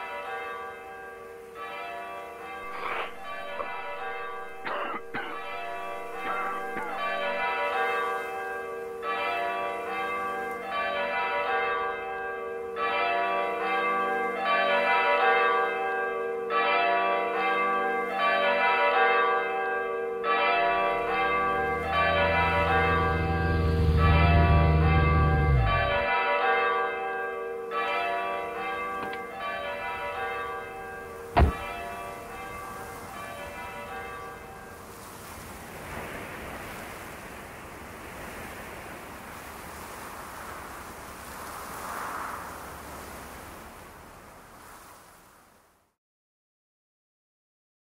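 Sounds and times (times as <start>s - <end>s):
bells ringing in a peal: 0.0s - 35.0s
low hum: 20.8s - 26.1s
sharp knock: 31.4s - 31.7s
soft hiss: 34.0s - 45.7s.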